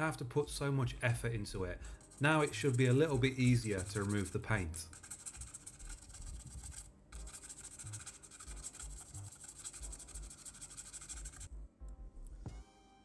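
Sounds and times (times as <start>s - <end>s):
stiff brush scrubbing plastic: 1.8s - 11.5s.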